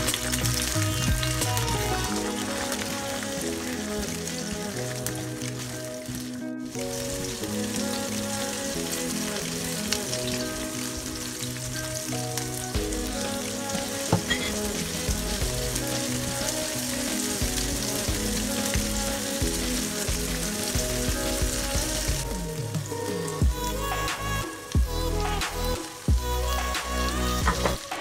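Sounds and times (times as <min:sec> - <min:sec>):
background music: 0:00.0 - 0:28.0
shallots sizzling in hot oil: 0:00.0 - 0:28.0.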